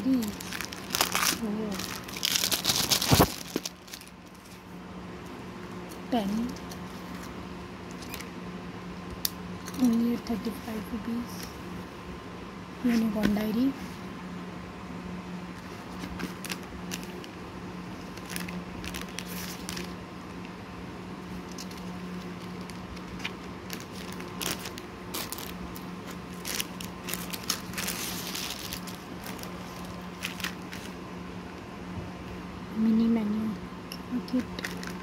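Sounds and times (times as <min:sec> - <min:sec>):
plastic crinkling: 0:00.0 - 0:04.6, 0:15.6 - 0:20.0, 0:21.3 - 0:31.0, 0:34.4 - 0:35.0
diary pages turning: 0:00.2 - 0:04.6, 0:15.6 - 0:20.0, 0:21.4 - 0:31.0.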